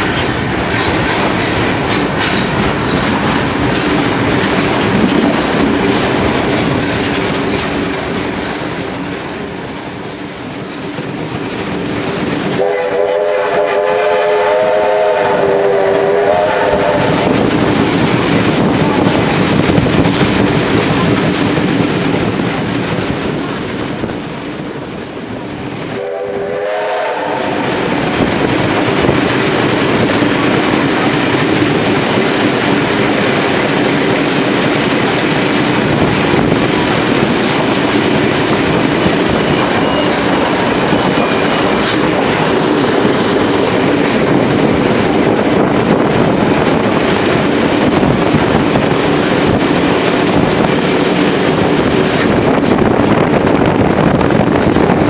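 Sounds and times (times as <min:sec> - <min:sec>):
train wheel and carriage noise: 0:00.0 - 0:55.0
steam locomotive whistle: 0:12.5 - 0:17.3, 0:25.9 - 0:27.9, 0:39.3 - 0:41.9.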